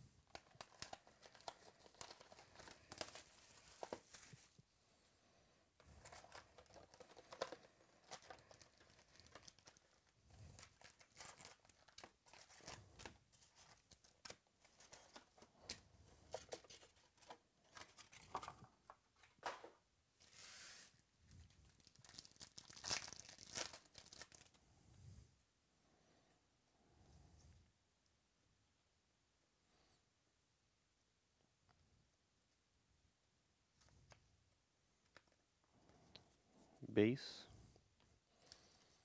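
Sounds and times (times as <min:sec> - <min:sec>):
cards shuffling: 0:00.3 - 0:04.5, 0:06.0 - 0:20.9
wrappers crinkling and tearing: 0:00.3 - 0:04.5, 0:06.0 - 0:15.4, 0:21.3 - 0:24.6.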